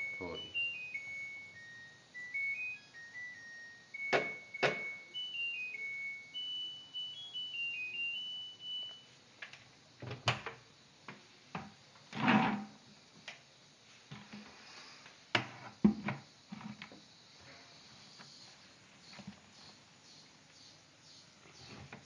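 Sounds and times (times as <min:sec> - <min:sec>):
washing machine beeping tune: 0:00.0 - 0:09.1
door opening clicks and knocks: 0:04.1 - 0:05.0, 0:10.0 - 0:10.6.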